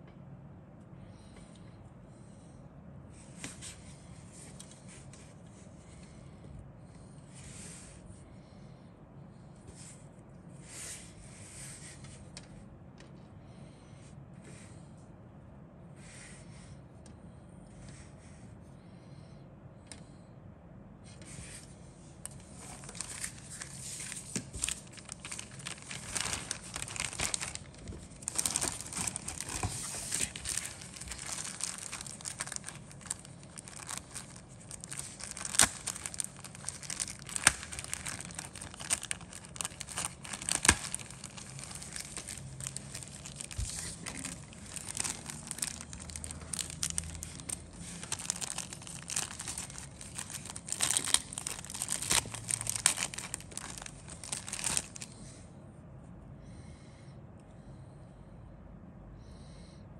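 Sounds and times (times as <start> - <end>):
plastic bag crinkling: 22.3 - 55.2.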